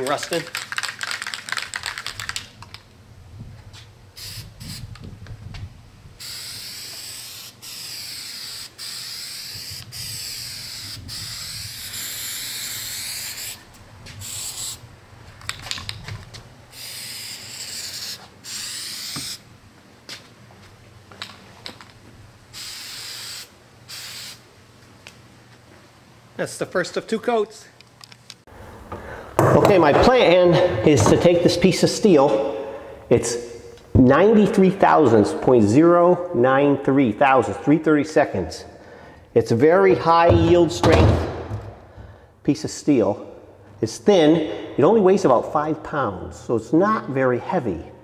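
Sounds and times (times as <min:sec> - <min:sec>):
quick clicks: 0:00.0 - 0:02.9
aerosol can spraying in hissing bursts: 0:04.2 - 0:04.9, 0:06.2 - 0:14.8, 0:16.7 - 0:19.4, 0:22.5 - 0:24.4.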